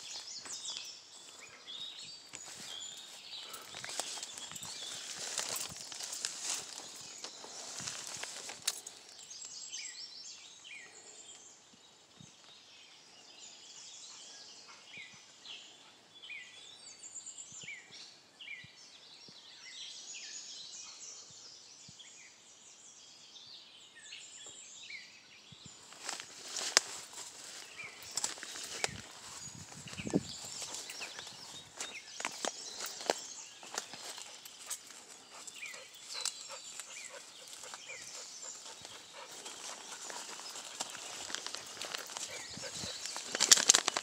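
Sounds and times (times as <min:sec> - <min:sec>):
footsteps through undergrowth: 0:00.0 - 0:09.2, 0:25.8 - 0:44.0
songbirds chirping and singing: 0:00.0 - 0:44.0.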